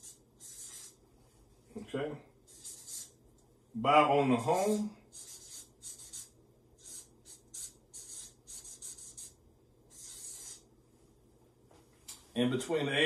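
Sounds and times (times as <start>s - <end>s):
marker writing on paper: 0.0s - 1.0s, 2.5s - 3.2s, 4.3s - 10.7s.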